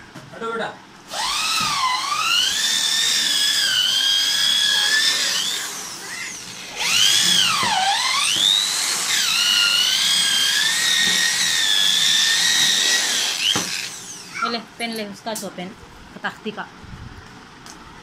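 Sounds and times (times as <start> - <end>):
electric drill whining: 1.1 - 14.5.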